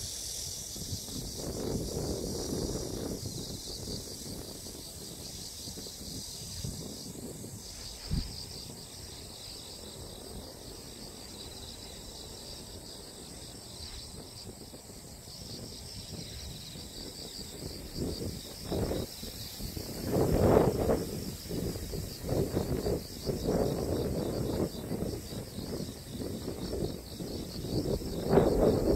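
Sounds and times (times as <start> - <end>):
insects singing: 0.0 - 28.9
wind rumble on microphone: 0.0 - 28.9.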